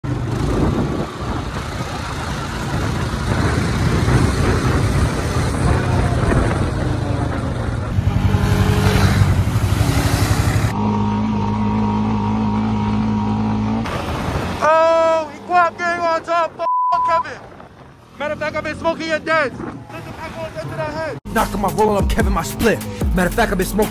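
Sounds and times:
quad bike engine revving: 0.0s - 14.6s.

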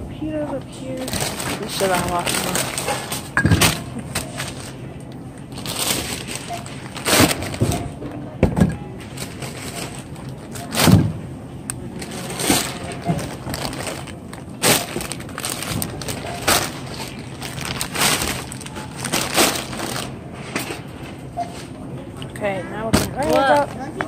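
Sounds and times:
plastic packaging crinkling: 0.9s - 7.9s, 9.0s - 11.0s, 11.9s - 20.2s
groceries knocking on conveyor belt: 5.6s - 11.2s, 12.1s - 20.8s.

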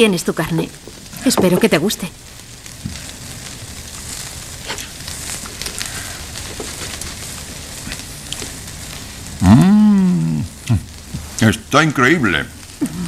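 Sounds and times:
meat sizzling on a griddle: 0.0s - 13.0s.

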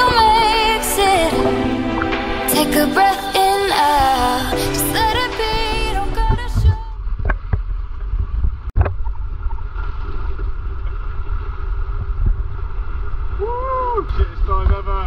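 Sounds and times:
wind rumbling on microphone: 3.4s - 15.0s.

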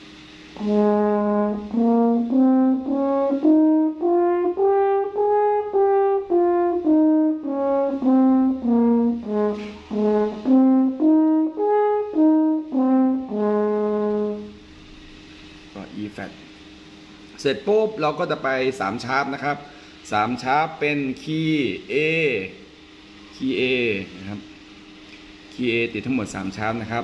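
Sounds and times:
french horn playing scale: 0.5s - 14.7s.

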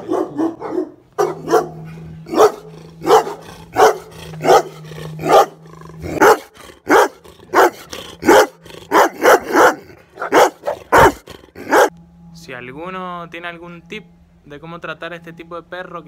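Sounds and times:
large dog barking: 0.0s - 11.9s.

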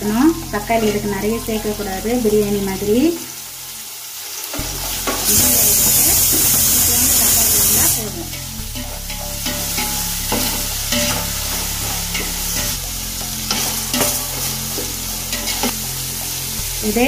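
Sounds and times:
vegetables sizzling in a pot: 0.0s - 17.0s
metal ladle scraping a pot: 5.0s - 15.9s.

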